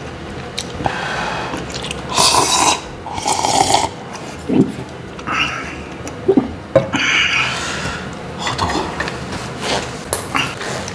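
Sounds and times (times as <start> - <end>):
person slurping soup: 1.5 - 4.6.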